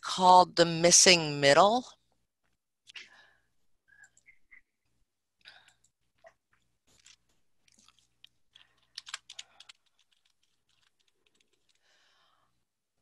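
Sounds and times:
faint keyboard typing: 5.4s - 12.1s.

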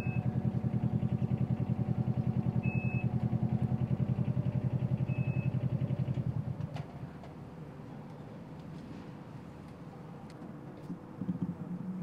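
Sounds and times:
engine chugging: 0.0s - 6.5s.

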